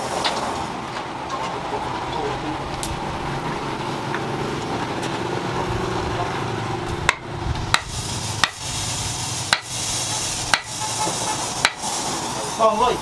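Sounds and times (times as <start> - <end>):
steady rushing noise: 0.0 - 13.0
hammer striking steel: 7.1 - 8.7, 9.5 - 11.9.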